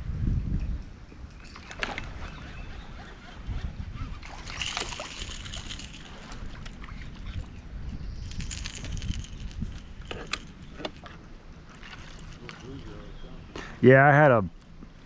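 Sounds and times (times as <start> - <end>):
water sloshing around kayak: 8.4 - 13.4.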